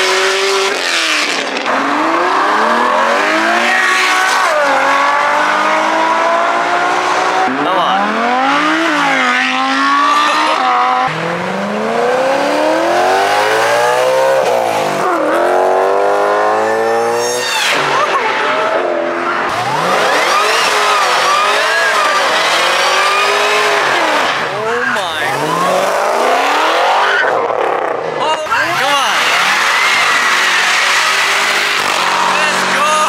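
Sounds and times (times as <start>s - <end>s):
cars accelerating past: 0.0s - 24.5s
car engine revving: 0.0s - 33.0s
tyres screeching: 16.8s - 27.4s, 28.2s - 33.0s.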